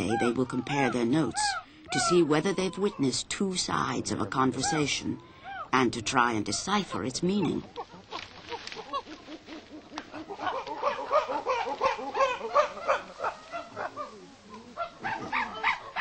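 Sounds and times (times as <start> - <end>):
chimpanzee pant hoots: 7.8 - 14.2.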